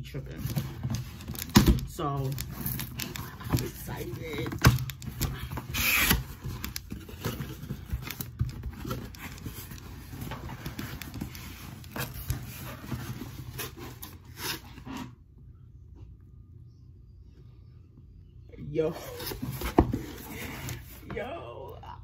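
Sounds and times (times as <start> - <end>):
cardboard rustling and scraping: 0.3 - 15.2, 18.9 - 21.2.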